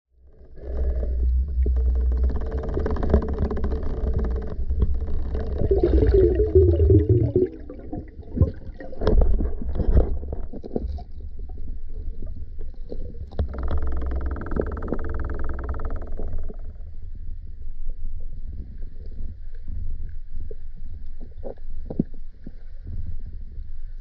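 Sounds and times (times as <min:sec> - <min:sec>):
low underwater rumble: 0:00.1 - 0:24.0.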